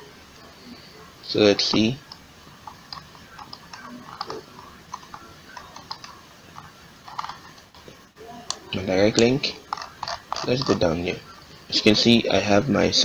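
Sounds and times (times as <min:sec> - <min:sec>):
computer mouse or keyboard clicking: 0:01.7 - 0:07.9, 0:09.2 - 0:10.8.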